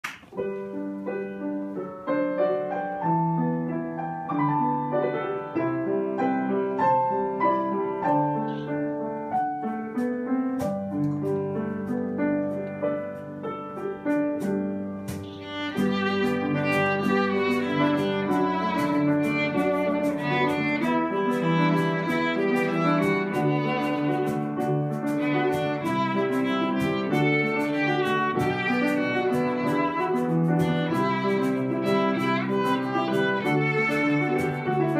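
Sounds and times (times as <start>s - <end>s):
cajon taps: 0.0s - 0.4s, 14.4s - 34.9s
grand piano playing: 0.2s - 34.9s
violin melody: 0.4s - 9.7s, 12.5s - 34.9s.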